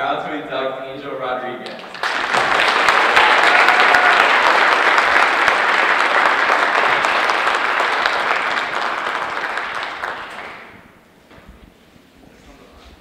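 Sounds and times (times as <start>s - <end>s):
audience applauding: 1.6s - 11.0s.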